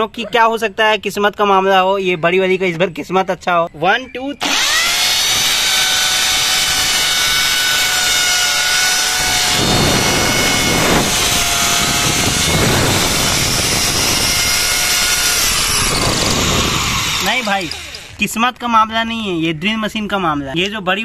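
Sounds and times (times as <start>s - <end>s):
electric drill motors whining: 4.4s - 18.6s
drill bits grinding into brick: 4.4s - 19.0s.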